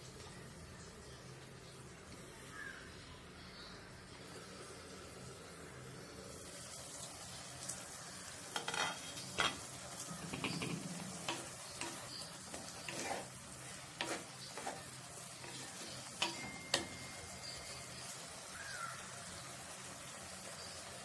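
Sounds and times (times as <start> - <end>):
vegetables sizzling in pot: 3.9 - 21.0
spatula scraping and knocking pot: 8.5 - 17.1.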